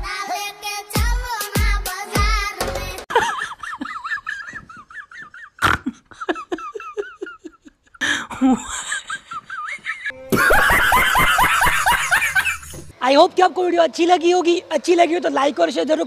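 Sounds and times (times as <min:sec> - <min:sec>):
woman giggling: 0:03.1 - 0:12.8.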